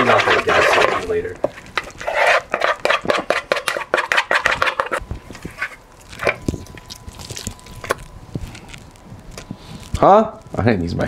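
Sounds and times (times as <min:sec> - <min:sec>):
wooden spoon scraping plastic bowl: 0:00.0 - 0:06.5.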